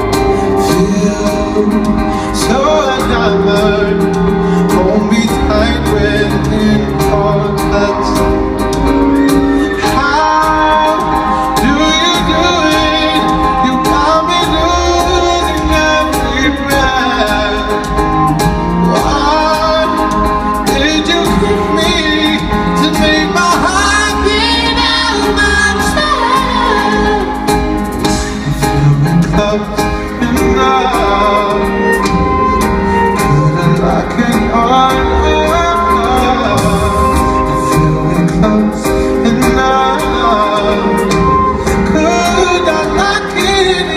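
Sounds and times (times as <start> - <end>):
man singing long sliding notes: 0.0 - 8.6, 9.2 - 43.9
bass: 0.0 - 43.9
keyboard chords: 0.0 - 43.9
live band playing: 0.0 - 43.9
steady drum beat: 0.0 - 43.9.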